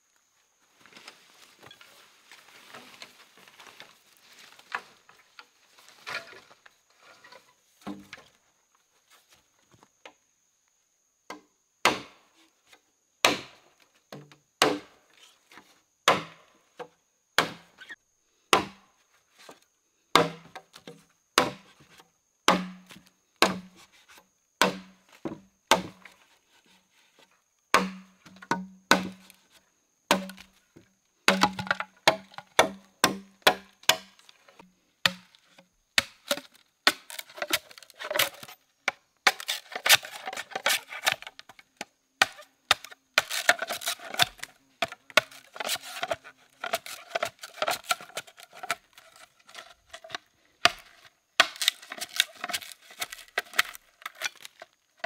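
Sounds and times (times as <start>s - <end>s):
rustling in undergrowth: 0.4s - 7.3s, 43.2s - 55.0s
chopping blows into wood: 20.1s - 20.5s, 22.5s - 23.7s, 24.6s - 25.0s, 27.7s - 29.2s, 31.3s - 34.1s.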